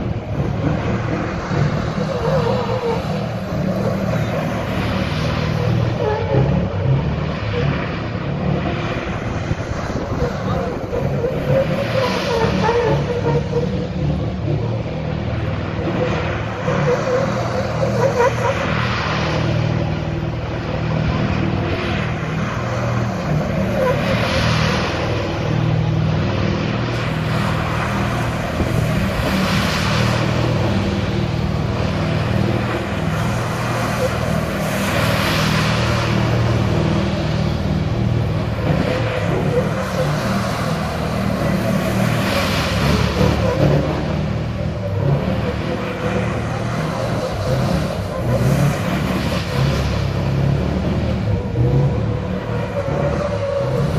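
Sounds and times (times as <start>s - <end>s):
diesel truck engine revving: 0.0s - 53.9s.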